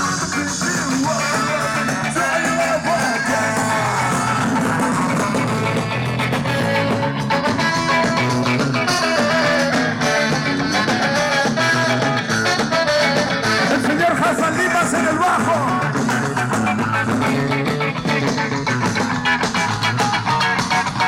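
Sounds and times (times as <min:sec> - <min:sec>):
guitars: 0:00.0 - 0:21.0
ska band playing live: 0:00.0 - 0:21.0
steady drum beat: 0:00.0 - 0:21.0.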